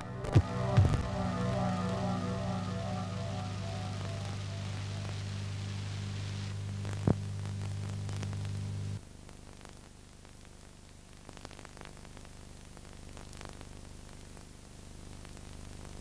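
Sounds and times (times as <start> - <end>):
electrical hum: 0.0 - 9.0
tape hiss: 0.0 - 16.0.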